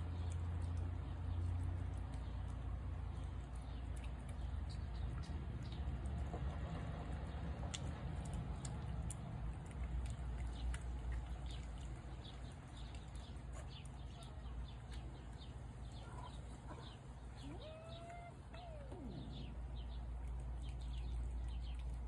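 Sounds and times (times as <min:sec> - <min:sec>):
low steady rumble: 0:00.0 - 0:22.0
small birds chirping: 0:00.0 - 0:22.0
rising and falling animal call: 0:17.4 - 0:19.6.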